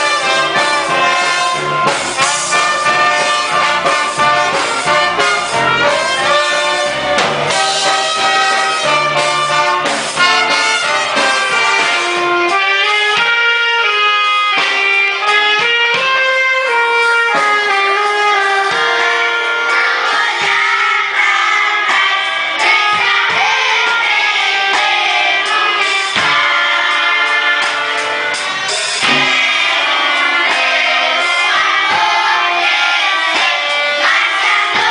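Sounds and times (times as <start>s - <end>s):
voices singing: 0.0s - 13.8s, 14.5s - 34.9s
orchestra with brass section: 0.0s - 22.9s, 24.7s - 34.9s.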